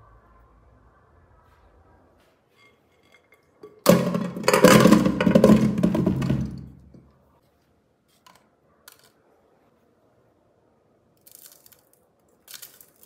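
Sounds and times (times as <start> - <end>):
potatoes pouring into metal pot: 3.6 - 6.8.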